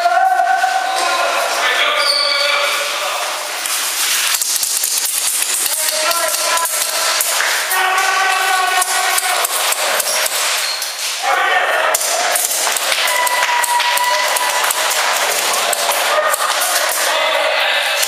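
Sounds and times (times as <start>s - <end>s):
players shouting: 0.0s - 3.0s, 5.6s - 10.6s, 11.2s - 18.0s
pellets striking hard surfaces: 3.7s - 11.2s, 11.9s - 17.1s.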